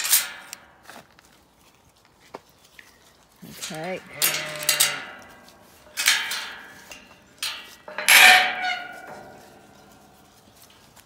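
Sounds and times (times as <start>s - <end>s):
metal gate clanking and rattling: 0.0s - 0.7s, 3.4s - 10.9s.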